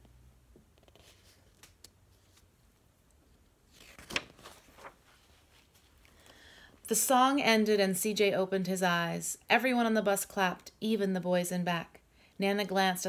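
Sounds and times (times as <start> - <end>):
paper page turning: 0.8 - 2.8, 3.6 - 6.1.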